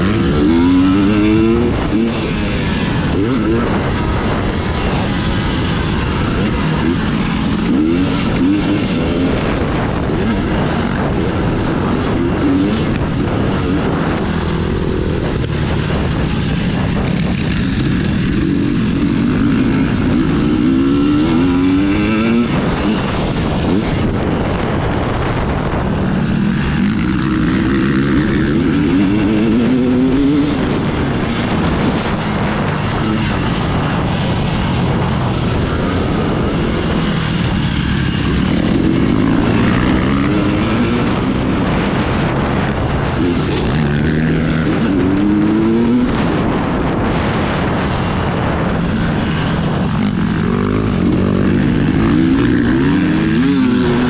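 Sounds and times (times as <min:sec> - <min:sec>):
steady rushing noise: 0:00.0 - 0:54.0
two-stroke engine accelerating: 0:00.0 - 0:54.0.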